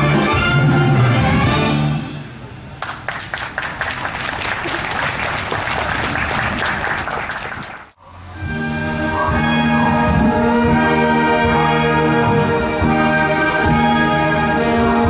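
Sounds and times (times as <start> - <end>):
brass band playing: 0.0 - 2.2, 8.4 - 15.0
audience applauding: 2.8 - 8.0.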